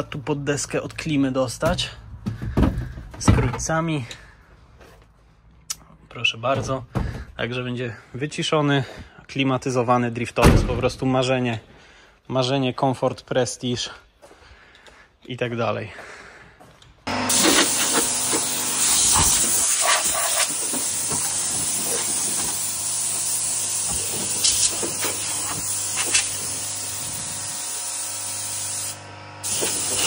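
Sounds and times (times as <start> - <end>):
compressed air blow gun hissing: 17.3 - 30.0.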